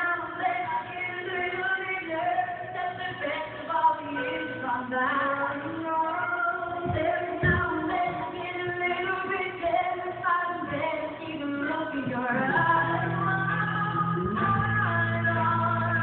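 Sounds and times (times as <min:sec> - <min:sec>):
voices singing over music: 0:00.0 - 0:16.0
low thumps: 0:06.8 - 0:08.4, 0:12.0 - 0:16.0.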